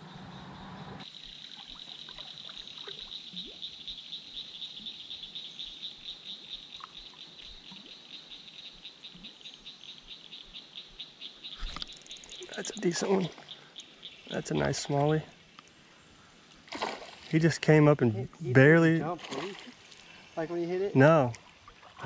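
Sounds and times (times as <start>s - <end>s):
water noise: 0.0s - 3.8s, 11.6s - 22.0s.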